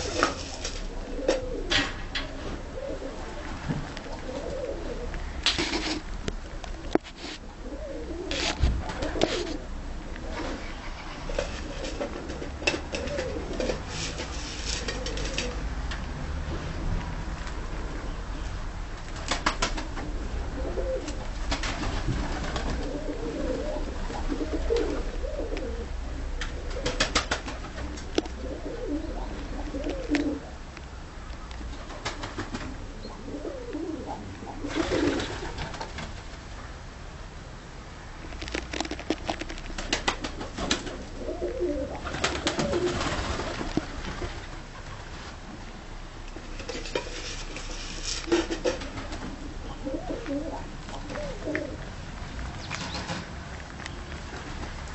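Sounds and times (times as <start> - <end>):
birds clicking and scuffling: 0.0 - 2.6, 10.2 - 16.0, 18.4 - 20.1, 26.4 - 32.8, 38.2 - 45.2, 46.3 - 54.9
pigeons cooing: 0.0 - 5.4, 6.7 - 15.7, 19.8 - 30.6, 32.1 - 36.0, 40.1 - 43.9, 48.3 - 53.3.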